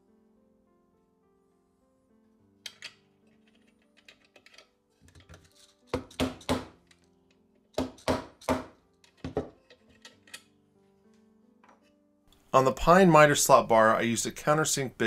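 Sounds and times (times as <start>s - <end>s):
quiet background music: 0.0s - 15.0s
metal bolt clicking on nut: 2.6s - 6.2s, 9.0s - 10.5s.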